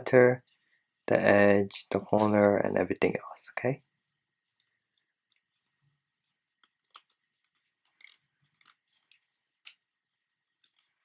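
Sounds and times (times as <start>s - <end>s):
paper crinkling and clicking: 4.0s - 9.9s.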